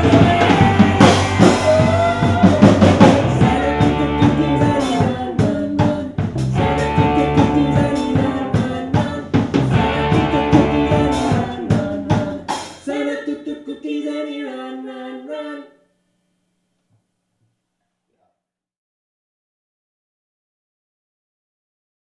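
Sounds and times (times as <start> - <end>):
rock band playing: 0.0 - 12.8
drum kit: 0.0 - 12.9
person singing: 0.0 - 15.9.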